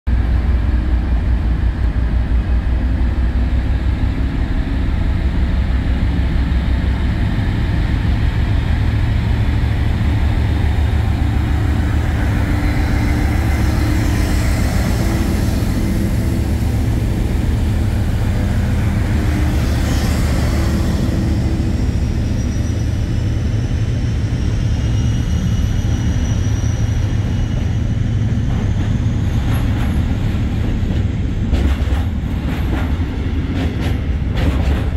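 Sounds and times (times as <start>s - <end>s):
diesel locomotive engine rumble: 0.1s - 34.9s.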